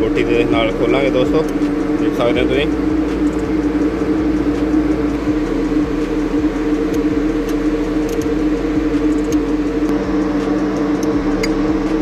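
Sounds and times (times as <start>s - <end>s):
machine humming: 0.0s - 12.0s
socket ratchet clicks: 2.8s - 11.7s.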